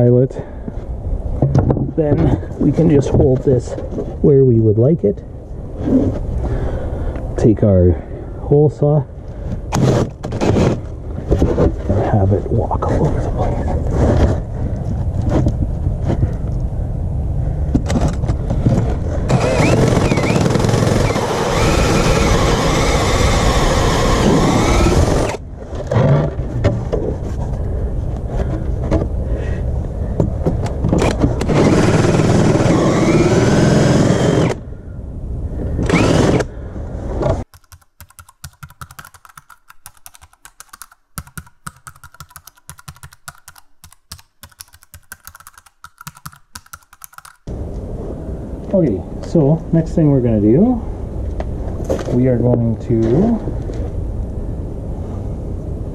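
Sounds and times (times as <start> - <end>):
drill cutting into wood: 19.3 - 25.4, 31.4 - 34.6, 35.9 - 36.4.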